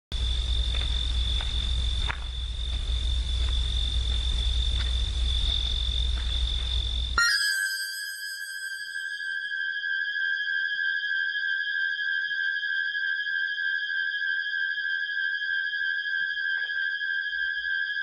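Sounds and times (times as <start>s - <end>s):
crickets trilling: 0.1s - 10.6s.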